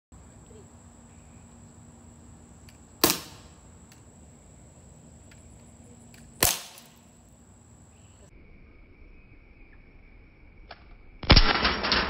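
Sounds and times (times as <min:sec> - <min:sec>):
bb gun shots: 0:03.0 - 0:03.5, 0:06.4 - 0:07.0.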